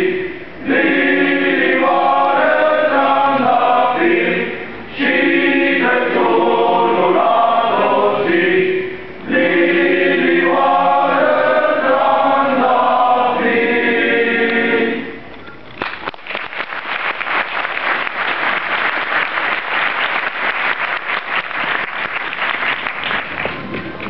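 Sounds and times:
male choir singing carol: 0.0s - 15.2s
audience applause: 15.8s - 23.8s.

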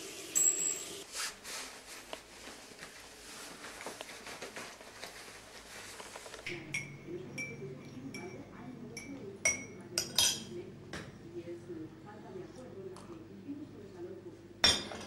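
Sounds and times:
clothing rustling: 1.1s - 6.5s
teaspoon clinking in ceramic cup: 6.7s - 8.4s.

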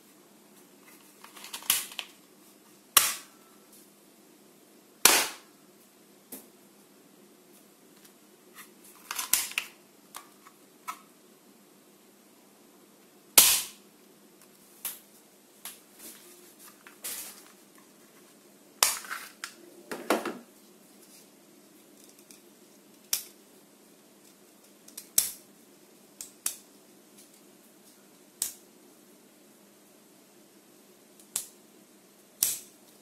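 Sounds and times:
plastic clicks and clatters: 1.2s - 2.1s
toy pistol crack: 3.0s - 3.3s, 5.0s - 5.4s, 13.4s - 13.8s.

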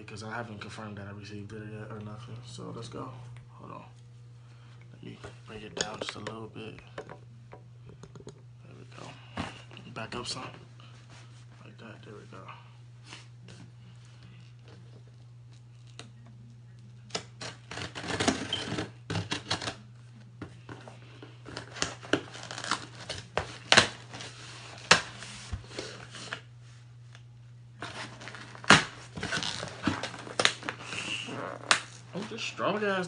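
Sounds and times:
knife cutting packing tape: 17.1s - 19.8s, 21.5s - 26.4s, 27.8s - 32.0s
tape ripping and cardboard crackling: 17.1s - 19.9s, 21.5s - 26.4s, 27.8s - 32.3s.

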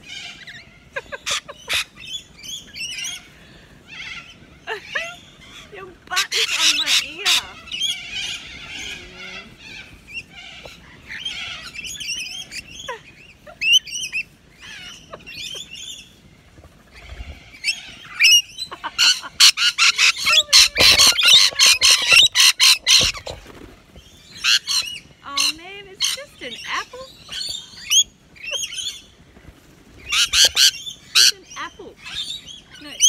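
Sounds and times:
lorikeets chattering: 0.0s - 16.2s, 16.9s - 23.6s, 24.2s - 29.2s, 30.0s - 33.0s
harsh bird screeches: 19.4s - 23.4s.

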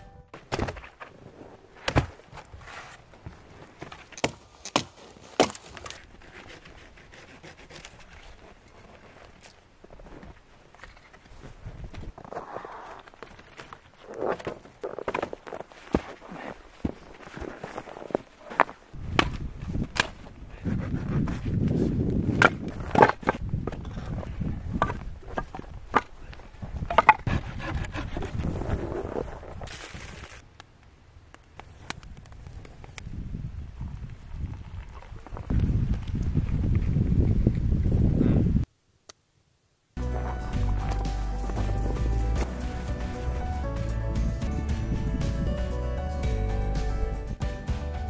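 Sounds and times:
branches rustling: 0.4s - 23.6s, 25.2s - 30.6s, 40.0s - 43.8s
footsteps crunching in snow: 2.2s - 6.1s, 11.3s - 22.2s, 40.0s - 43.7s
firewood pieces knocking together: 26.8s - 27.3s
wooden logs knocking: 26.8s - 28.1s.

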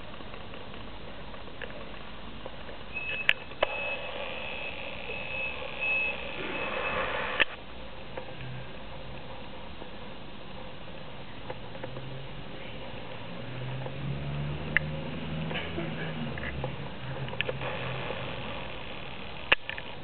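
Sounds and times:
background hiss: 0.0s - 20.0s
high electronic beep: 2.9s - 7.4s
sharp click: 19.4s - 19.9s.

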